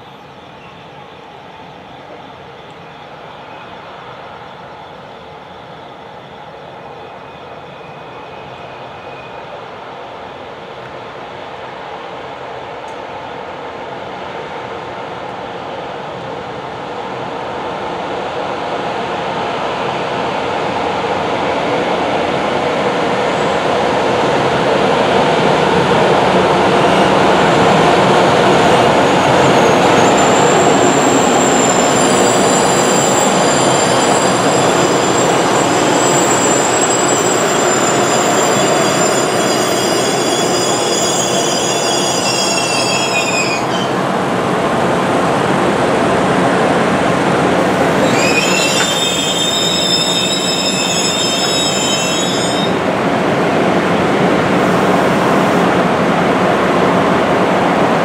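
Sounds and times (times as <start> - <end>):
train wheels rumbling on rails: 0.0 - 58.0
high wheel squeal: 29.0 - 44.0, 47.7 - 52.8.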